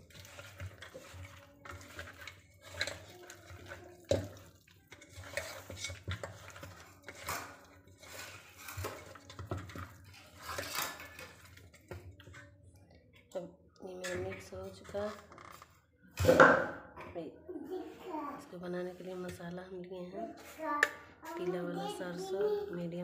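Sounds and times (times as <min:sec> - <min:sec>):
clinks and scrapes in metal bowl: 0:00.0 - 0:13.3.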